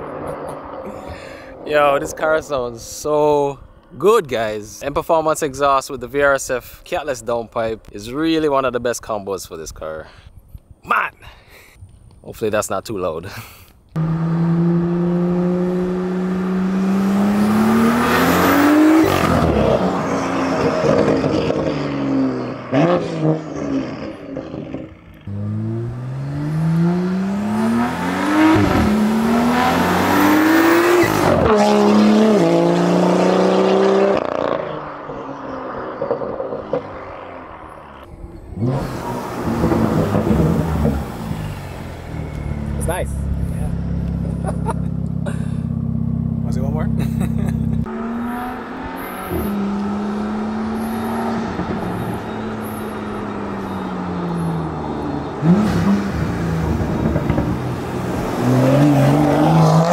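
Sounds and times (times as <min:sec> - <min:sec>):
car engine revving through gears: 0:13.9 - 0:59.9.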